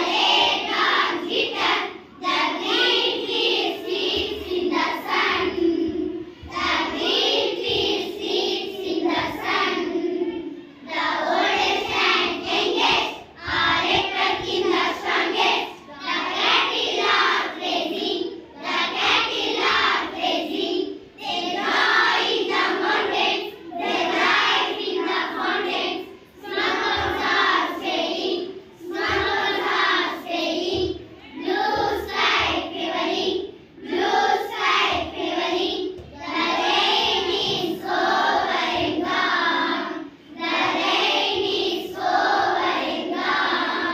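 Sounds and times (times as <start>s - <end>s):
girls singing in unison: 0.0s - 43.9s.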